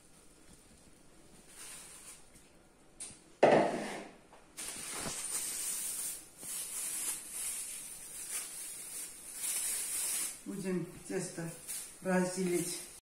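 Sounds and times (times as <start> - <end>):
plastic bag rustling: 0.0 - 2.7, 4.6 - 13.0
plastic bowl knocking on table: 3.4 - 3.9.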